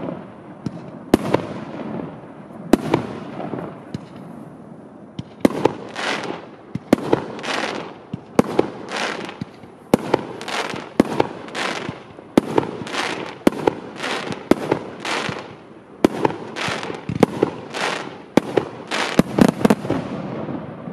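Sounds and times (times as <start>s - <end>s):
firework rushing bursts: 5.4s - 20.9s.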